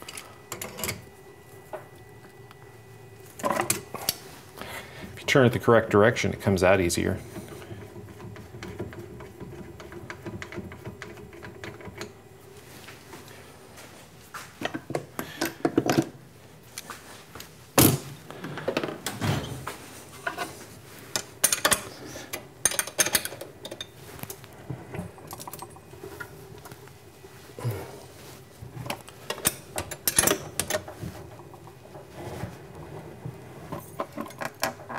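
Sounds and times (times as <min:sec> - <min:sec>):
faint steady hum: 0:00.0 - 0:34.9
metal tools clattering on metal: 0:21.2 - 0:24.0, 0:29.3 - 0:30.9.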